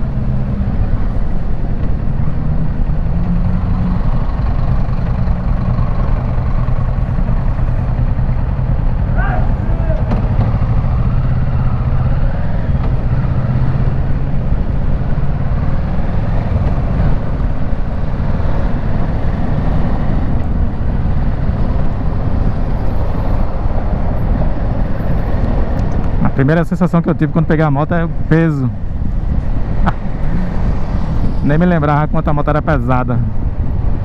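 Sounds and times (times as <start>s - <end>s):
motorcycle engine running: 0.9s - 24.6s
wind noise on microphone: 33.2s - 34.0s.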